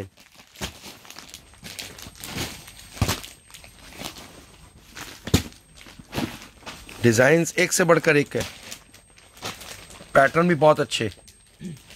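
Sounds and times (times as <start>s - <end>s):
cloth rustling and crinkling: 0.1s - 11.9s.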